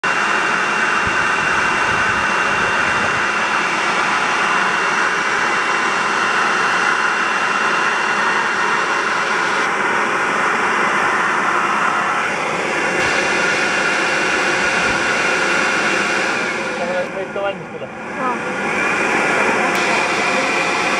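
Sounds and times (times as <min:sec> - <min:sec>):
constant high whine: 0:00.1 - 0:20.9.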